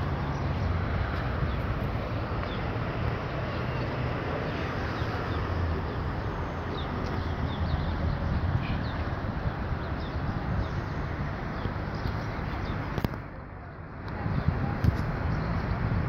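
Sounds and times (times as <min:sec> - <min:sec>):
small birds chirping: 0:00.0 - 0:15.9
road traffic rumble: 0:00.0 - 0:16.0.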